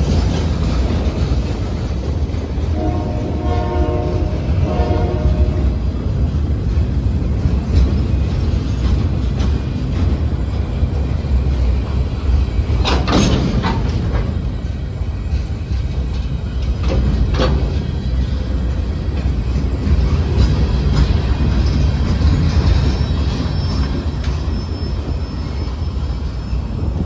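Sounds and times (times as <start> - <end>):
train wheels rumbling on rail: 0.0 - 27.0
metallic screeches: 21.7 - 26.9.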